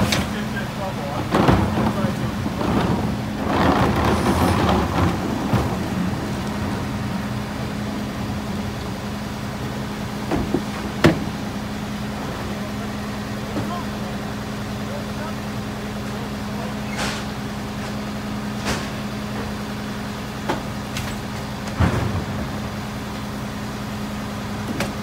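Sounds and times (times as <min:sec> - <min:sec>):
trash clattering into hopper: 0:00.0 - 0:07.4, 0:20.5 - 0:22.9
garbage truck engine idling: 0:00.0 - 0:25.0
bang: 0:21.8 - 0:22.7.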